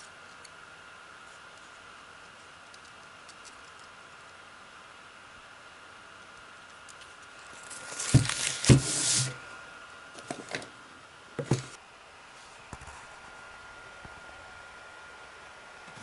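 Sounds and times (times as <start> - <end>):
tissue paper rustling: 7.5 - 9.4
cardboard box taps and knock: 11.4 - 11.7.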